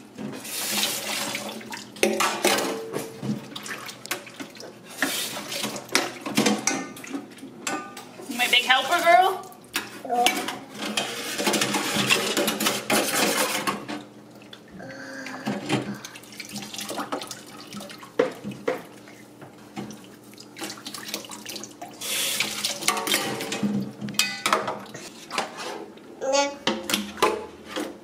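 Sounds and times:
utensils clinking and knocking: 22.8s - 24.8s.

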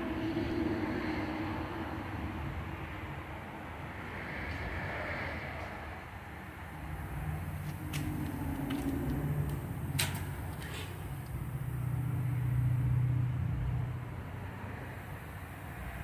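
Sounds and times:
vehicle engine running: 6.7s - 16.0s.

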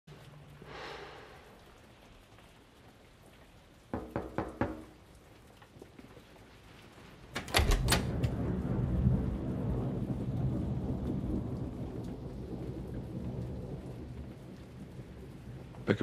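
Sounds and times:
rain: 0.1s - 16.0s
knocking on a door: 3.9s - 5.0s
low rumble of thunder: 7.6s - 16.0s.

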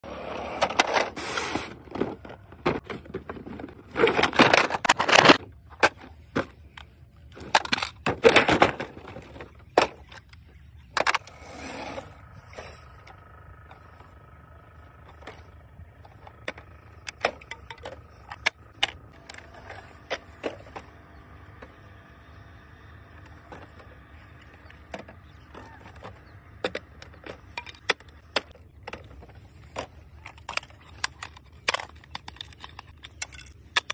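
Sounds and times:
toy wheels rolling on asphalt: 0.0s - 33.9s
plastic toys clicking and knocking: 1.9s - 11.4s, 15.0s - 22.0s, 23.1s - 33.9s.

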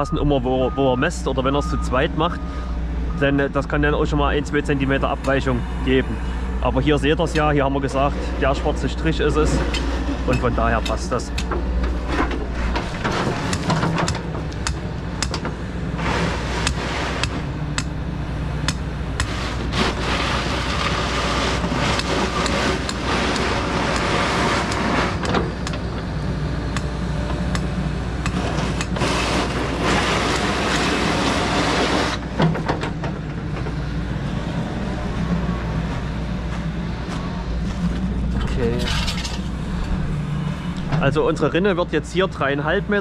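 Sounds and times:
engine-like rumble: 0.0s - 43.0s.

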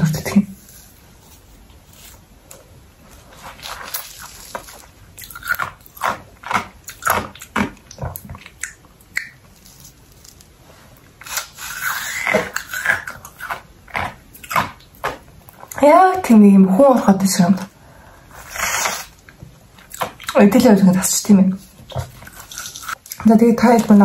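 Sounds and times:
wet mouth clicks: 7.9s - 9.5s.

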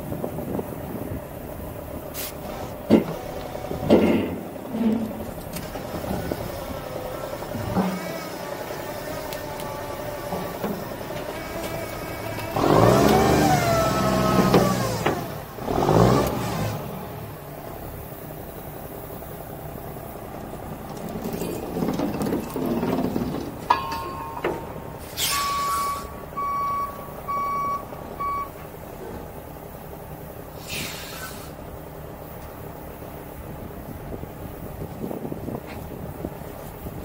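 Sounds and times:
diesel truck engine revving: 0.0s - 23.7s
air hiss: 2.1s - 2.5s, 25.0s - 26.2s, 30.5s - 31.6s
backup alarm beeping: 25.3s - 28.6s.

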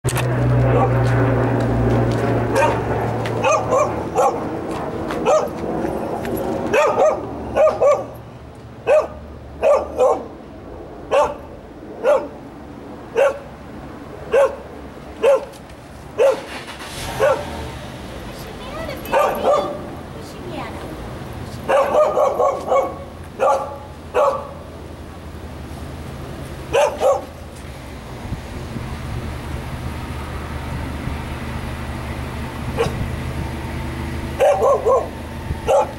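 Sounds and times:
dog barking: 0.7s - 1.0s, 2.5s - 2.8s, 3.4s - 4.4s, 5.2s - 5.6s, 6.7s - 8.2s, 8.8s - 10.3s, 11.1s - 12.4s, 13.2s - 13.5s, 14.3s - 14.6s, 15.2s - 15.5s, 16.2s - 16.5s, 17.2s - 17.5s, 19.1s - 19.8s, 21.7s - 24.6s, 26.7s - 27.3s, 34.4s - 35.9s.

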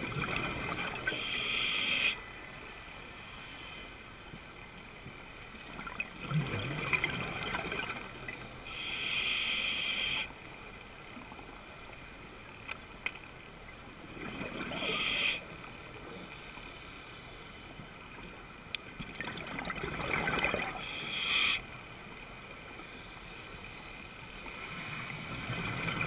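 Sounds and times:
regulator inhalation hiss: 1.0s - 2.2s, 8.4s - 10.3s, 14.8s - 17.8s, 20.8s - 21.6s, 22.8s - 26.0s
exhaust bubbles underwater: 5.8s - 8.3s, 19.1s - 20.9s.

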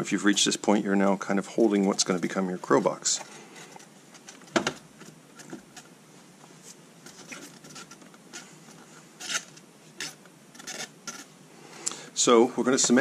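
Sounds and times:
faint rustling: 0.0s - 13.0s.

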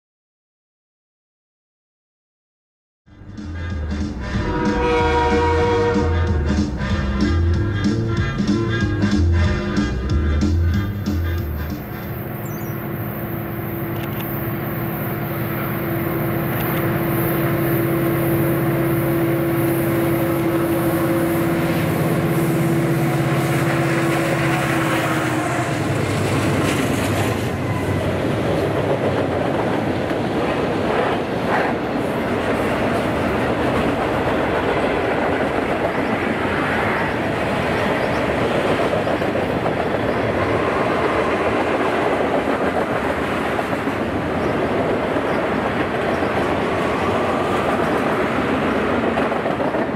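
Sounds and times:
diesel locomotive drone: 3.1s - 49.9s
train wheels clickety-clack: 20.4s - 49.9s.

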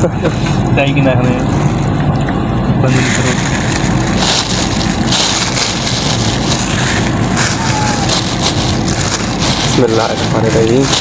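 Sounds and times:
van road rumble: 0.0s - 11.0s
plastic bag crinkling: 2.9s - 11.0s.

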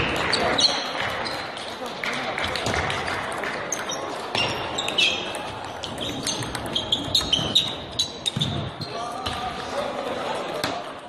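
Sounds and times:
crowd chatter: 0.0s - 11.0s
table tennis balls clicking: 2.4s - 8.4s.

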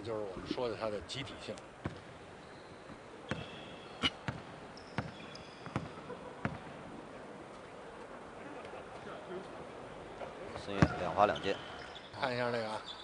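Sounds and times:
sneakers squeaking: 1.8s - 6.8s, 10.5s - 13.0s
basketball bouncing on hardwood: 3.3s - 3.5s, 4.2s - 6.6s.

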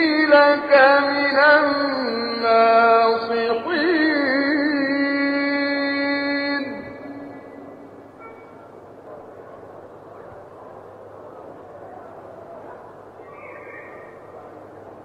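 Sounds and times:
man reciting melodically: 0.0s - 7.7s.

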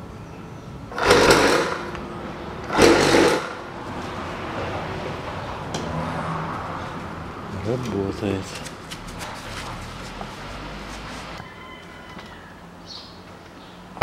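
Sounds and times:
air compressor motor running: 0.9s - 2.0s, 2.7s - 3.7s.

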